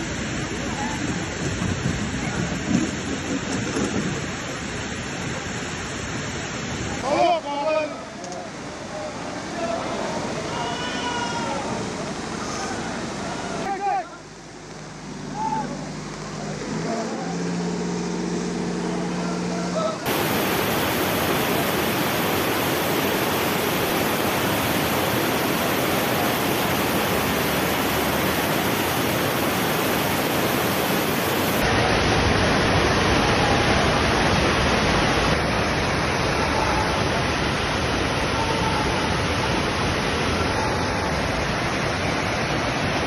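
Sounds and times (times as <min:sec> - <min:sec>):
floodwater rushing over a wall: 0:20.0 - 0:43.0.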